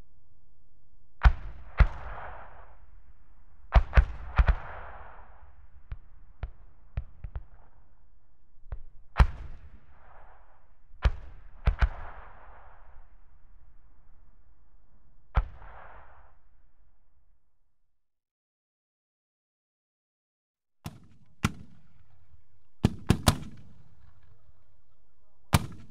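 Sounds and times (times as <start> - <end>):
mortar fire reports: 20.9 - 25.9.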